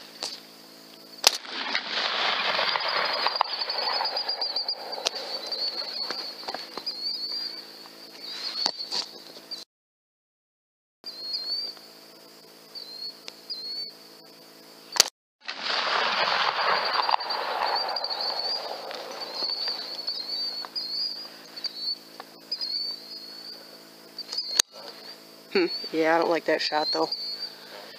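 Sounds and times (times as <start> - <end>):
crickets chirping: 0.0 - 9.6, 11.1 - 27.9
steady low hum: 0.0 - 9.6, 11.1 - 27.9
rifle shot: 1.2 - 6.3, 15.5 - 20.6.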